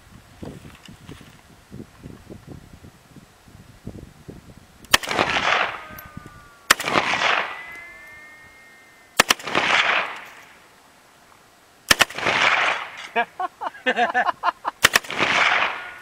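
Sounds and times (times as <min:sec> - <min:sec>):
rolling gunshot echo: 0:04.9 - 0:08.4, 0:09.2 - 0:10.5, 0:11.9 - 0:13.1, 0:14.8 - 0:15.9
rifle shots: 0:04.9 - 0:10.6, 0:11.9 - 0:13.1, 0:14.8 - 0:16.0.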